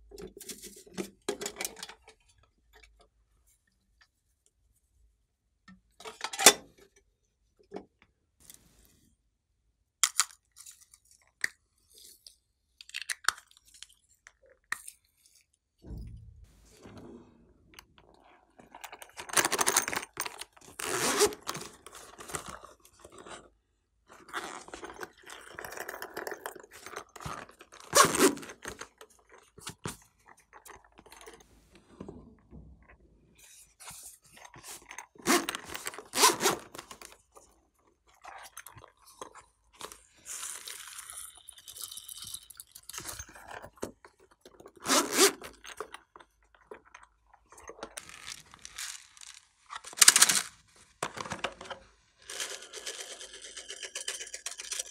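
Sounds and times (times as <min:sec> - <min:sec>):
sharp knocks: 0:15.8 - 0:17.6.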